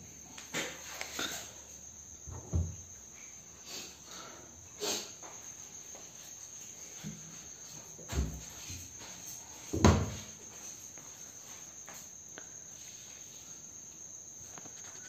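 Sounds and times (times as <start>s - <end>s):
cricket trilling: 0.0s - 15.0s
cabinet doors knocking shut: 2.3s - 2.8s, 9.8s - 10.2s.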